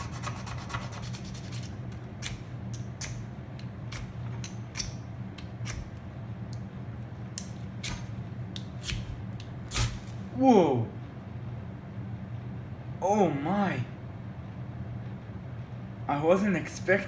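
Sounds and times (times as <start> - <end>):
steady low hum: 0.0 - 17.0
striker scraping fire rod: 7.4 - 10.2.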